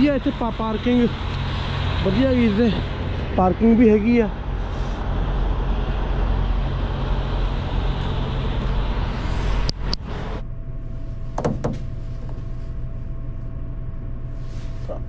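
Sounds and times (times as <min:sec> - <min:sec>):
diesel truck engine idling: 0:00.0 - 0:13.2
knocks: 0:11.4 - 0:11.9.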